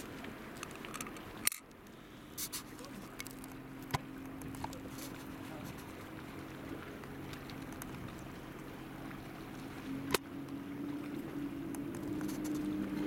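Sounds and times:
ship machinery humming: 0.0s - 13.0s.

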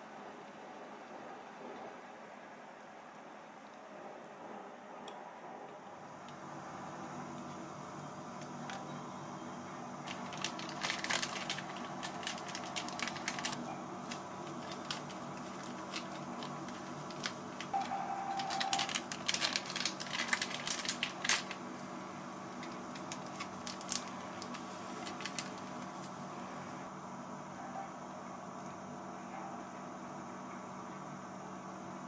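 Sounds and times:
low steady hum: 0.0s - 32.0s
plastic sachet crinkling: 10.0s - 26.3s.

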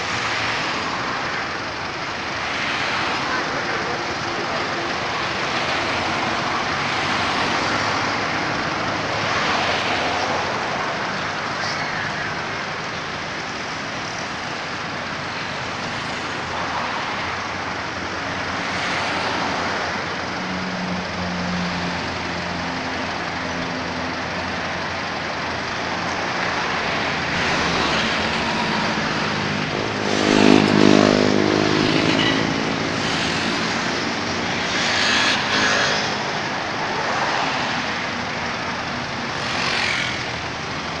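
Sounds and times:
road traffic noise: 0.0s - 41.0s
engine passing by: 25.9s - 41.0s.

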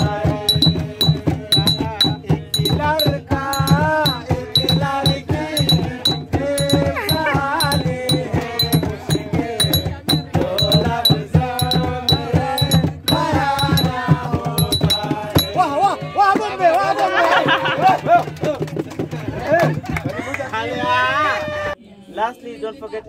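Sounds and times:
drumming on plastic jerrycans: 0.0s - 16.8s
group singing: 0.0s - 17.8s.

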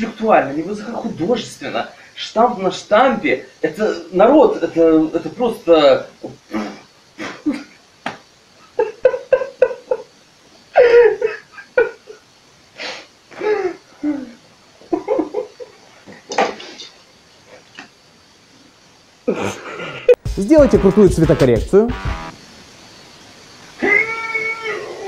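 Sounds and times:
man laughing: 8.7s - 10.1s, 10.8s - 12.2s, 15.0s - 15.7s.

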